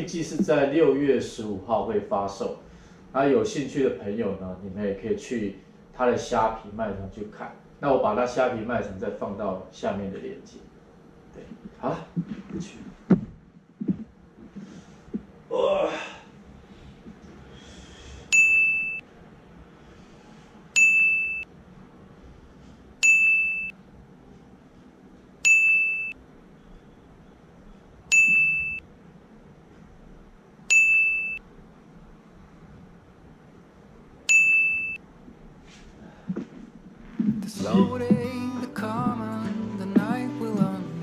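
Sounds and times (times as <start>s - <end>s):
electronic beep: 18.4s - 19.0s, 20.8s - 21.4s, 23.0s - 23.7s, 25.5s - 26.2s, 28.1s - 28.8s, 30.7s - 31.4s, 34.3s - 35.0s.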